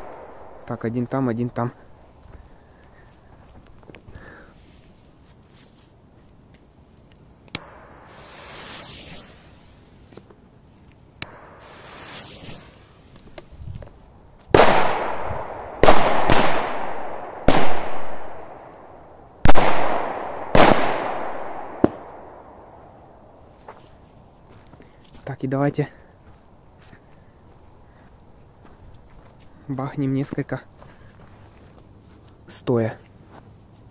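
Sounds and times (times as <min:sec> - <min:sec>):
firecracker bangs with echo: 0:14.5 - 0:18.5, 0:19.4 - 0:22.4.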